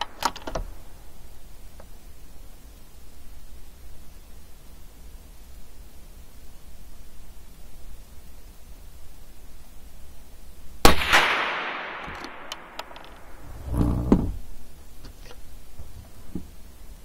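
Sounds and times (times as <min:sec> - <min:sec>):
rifle handling clicks and rattle: 0:00.0 - 0:00.6, 0:12.0 - 0:13.3
rifle shot echoing indoors: 0:10.8 - 0:13.4.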